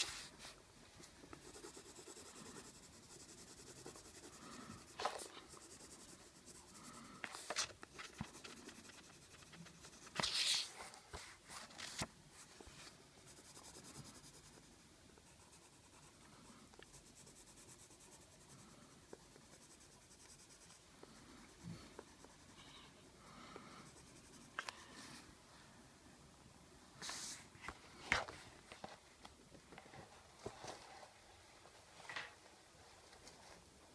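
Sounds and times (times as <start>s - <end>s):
pencil scratching on paper: 1.3s - 11.2s, 13.2s - 22.9s, 23.8s - 24.8s.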